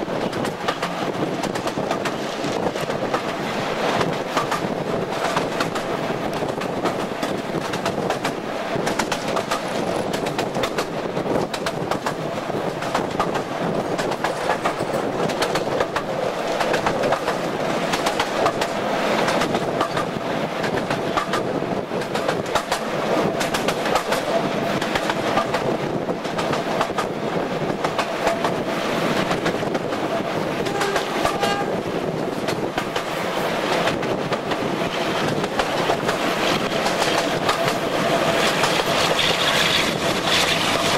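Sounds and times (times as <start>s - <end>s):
train running noise: 0.0s - 40.9s
wheels clicking over rail joints: 0.0s - 40.9s
locomotive whine: 30.4s - 32.1s.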